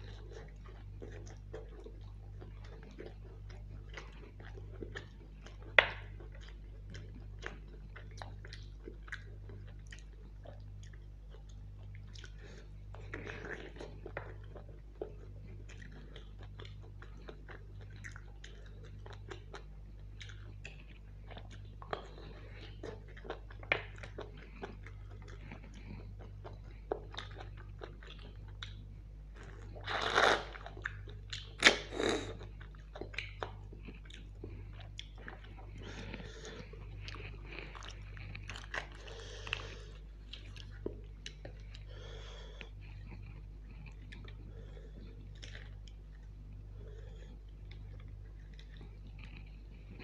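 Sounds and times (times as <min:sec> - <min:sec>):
wet chewing and biting: 0:00.0 - 0:41.9.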